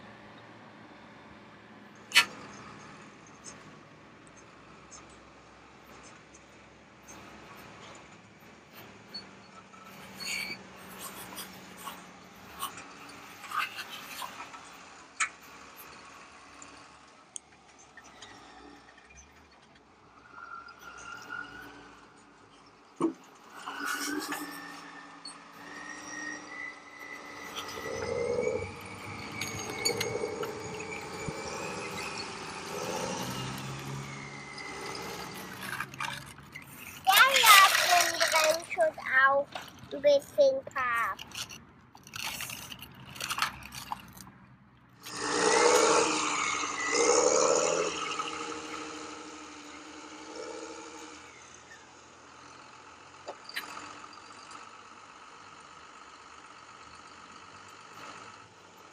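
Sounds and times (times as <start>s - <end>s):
engine running: 0.0s - 58.9s
high squeak: 23.8s - 38.9s
toy bucket scraping grit on concrete: 27.3s - 44.2s
debris clicking and rattling: 34.6s - 40.0s, 40.8s - 44.3s.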